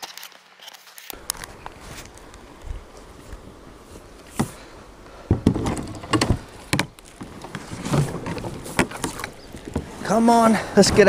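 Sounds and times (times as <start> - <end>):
rustling: 1.2 - 11.0
knocks and scrapes on plastic kayak: 4.3 - 11.0.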